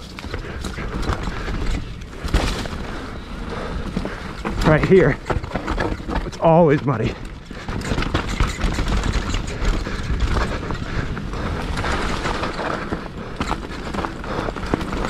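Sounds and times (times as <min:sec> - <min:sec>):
bike rattling and clattering: 0:00.0 - 0:15.0
tyres crunching over stones: 0:00.0 - 0:15.0.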